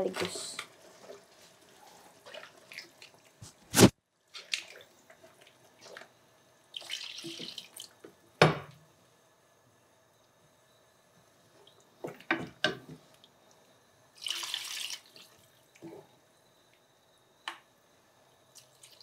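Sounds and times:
water pouring into a pan: 0:06.7 - 0:08.0, 0:14.2 - 0:15.4, 0:18.6 - 0:19.0.

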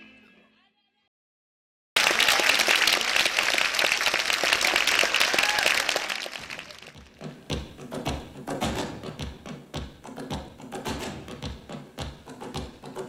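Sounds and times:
audience applauding: 0:02.0 - 0:07.1.

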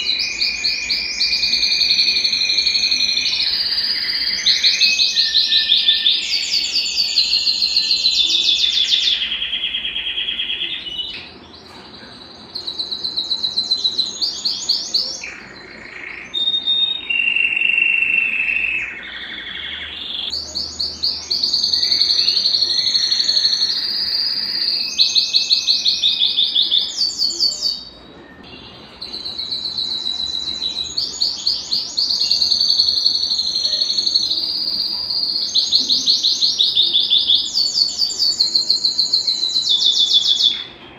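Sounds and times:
canary singing trills: 0:00.0 - 0:40.9.

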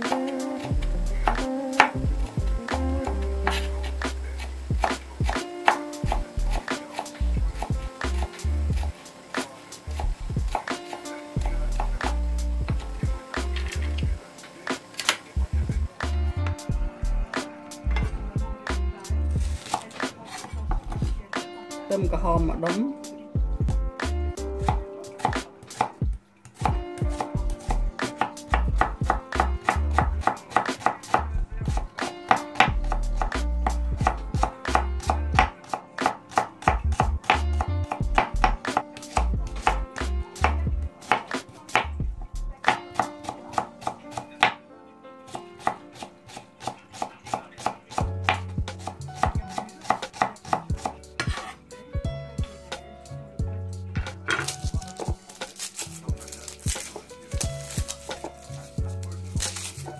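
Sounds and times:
knife chopping on wooden board: 0:04.7 - 0:08.4, 0:19.4 - 0:21.2, 0:26.6 - 0:41.9, 0:42.6 - 0:44.6, 0:45.3 - 0:51.6, 0:54.0 - 0:59.9.

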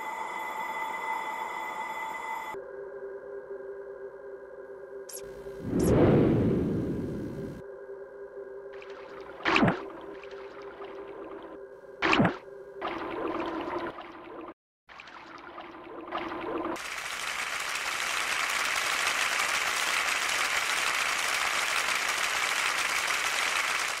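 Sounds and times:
held low electronic tone: 0:05.1 - 0:07.6
steady rushing noise: 0:05.6 - 0:07.6.

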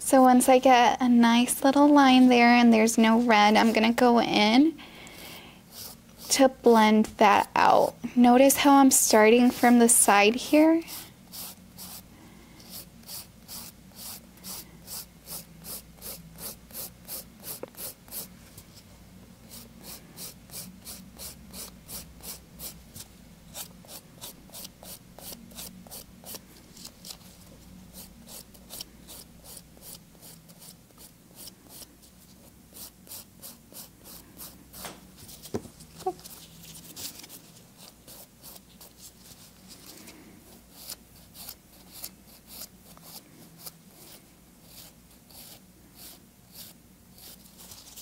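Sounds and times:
nail file rasping on nail: 0:05.7 - 0:06.4, 0:10.9 - 0:12.0, 0:12.6 - 0:18.3, 0:19.5 - 0:22.8, 0:23.5 - 0:26.4, 0:27.9 - 0:31.9, 0:32.7 - 0:34.9, 0:37.8 - 0:39.0, 0:40.7 - 0:47.5.

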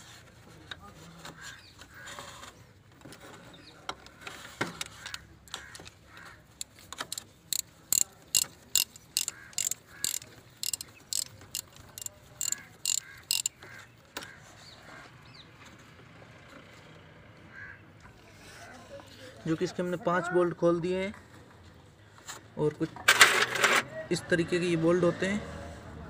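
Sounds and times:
socket ratchet clicking: 0:06.5 - 0:13.6.

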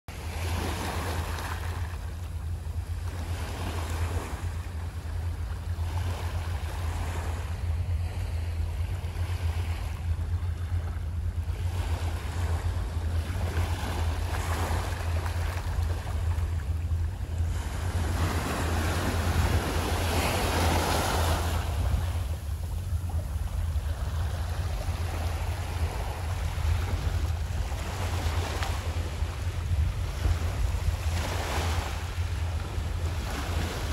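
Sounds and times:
wind rumble on microphone: 0:00.1 - 0:33.9
waves washing over rocks: 0:11.6 - 0:33.9.

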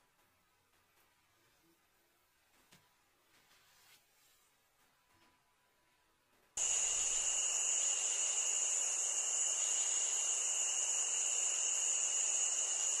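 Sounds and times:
night insects chorus: 0:06.6 - 0:13.0.

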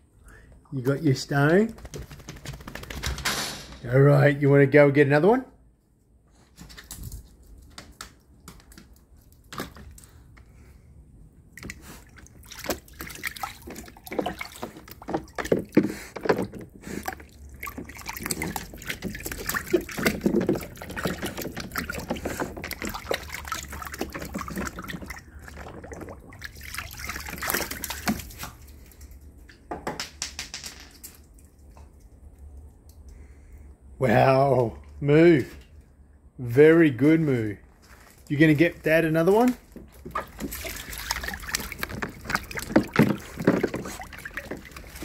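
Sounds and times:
dog splashing in water: 0:11.5 - 0:28.8, 0:39.9 - 0:45.0.

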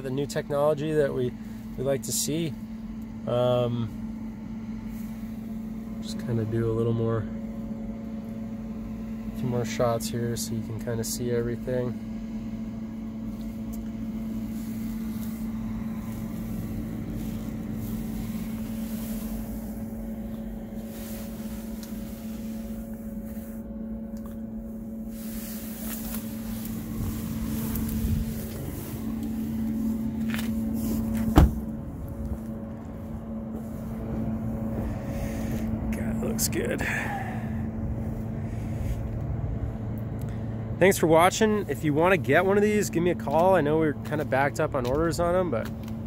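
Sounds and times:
low hum: 0:00.0 - 0:46.0
car door shutting thump: 0:30.2 - 0:31.8.

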